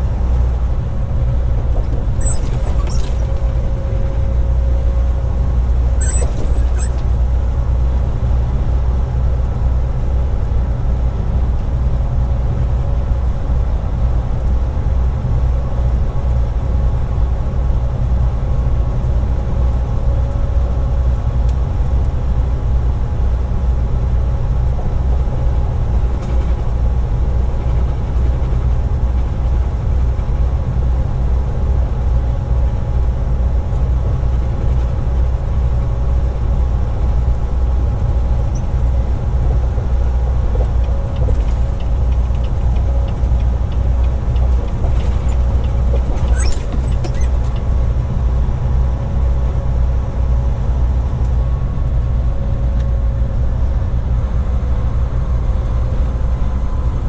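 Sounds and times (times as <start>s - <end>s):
truck engine and road rumble: 0.0s - 57.0s
faint high squeak: 2.1s - 3.9s, 5.9s - 7.2s, 45.0s - 47.6s.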